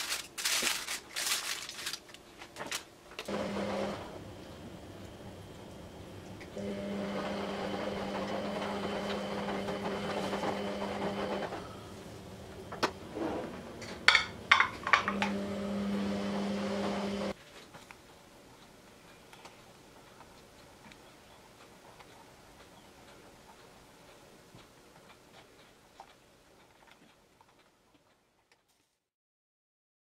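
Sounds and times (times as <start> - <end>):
electric hum: 2.7 - 17.4.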